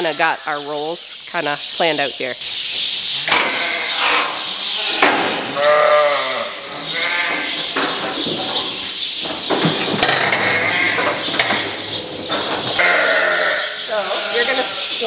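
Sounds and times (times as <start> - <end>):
sheep bleating: 3.3 - 7.6, 12.8 - 15.0.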